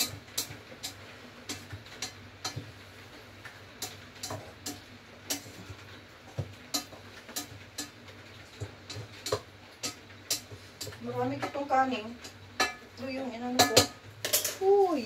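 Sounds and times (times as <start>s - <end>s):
utensil clicking against pot: 0.0s - 2.7s, 6.7s - 8.0s, 8.6s - 12.8s.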